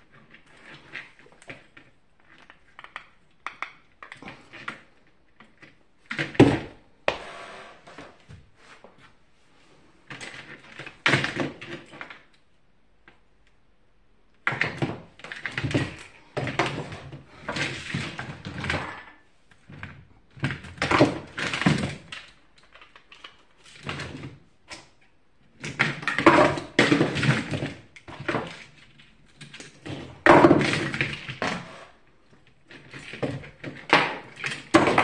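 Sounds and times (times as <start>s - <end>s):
plastic fan parts clattering: 25.6s - 32.0s, 32.7s - 35.0s.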